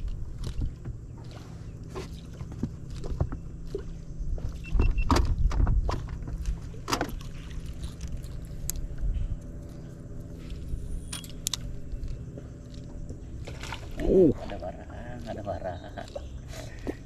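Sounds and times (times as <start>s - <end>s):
steady low rumble: 0.0s - 17.0s
knocks from boat and tackle: 4.4s - 7.5s.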